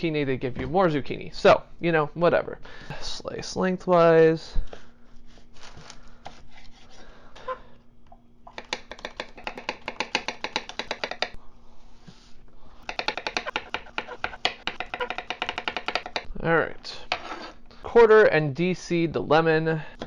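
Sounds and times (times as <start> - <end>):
knife chopping on wooden board: 8.5 - 11.4, 12.8 - 16.3.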